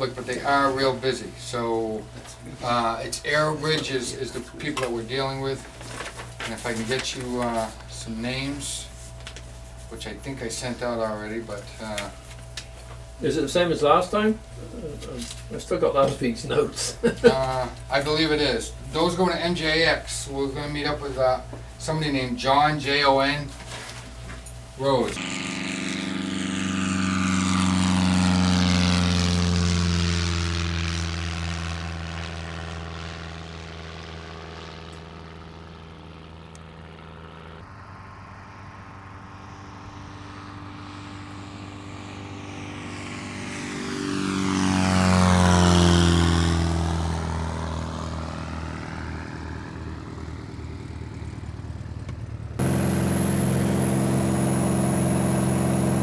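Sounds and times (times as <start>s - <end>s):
propeller planes passing by: 0.0s - 56.0s
engine noise inside plane cabin: 24.3s - 56.0s.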